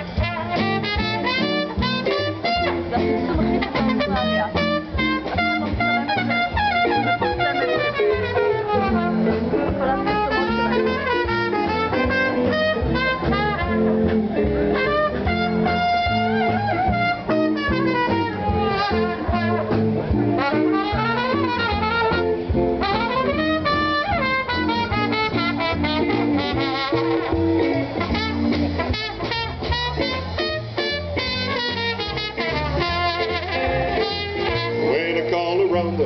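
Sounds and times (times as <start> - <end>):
brass: 0.0 - 36.0
double bass: 0.0 - 36.0
drums: 0.0 - 36.0.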